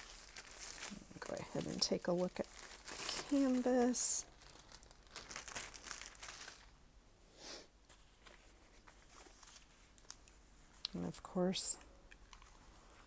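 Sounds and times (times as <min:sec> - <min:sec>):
plastic wrap crinkling: 0:00.0 - 0:06.8, 0:07.9 - 0:11.4.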